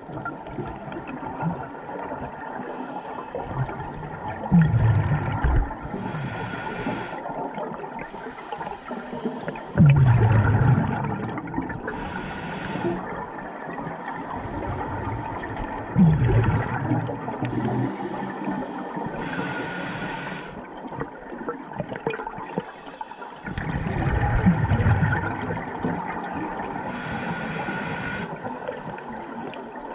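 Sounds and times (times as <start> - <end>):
exhaled bubbles rumbling: 0.0 - 2.6, 3.4 - 6.4, 9.5 - 18.4, 23.4 - 26.9
steady underwater hiss: 2.4 - 3.9, 5.3 - 10.0, 11.7 - 15.8, 17.1 - 20.9, 26.5 - 29.9
regulator inhalation hiss: 5.9 - 7.2, 8.1 - 9.8, 11.9 - 13.0, 17.5 - 20.6, 26.9 - 29.0.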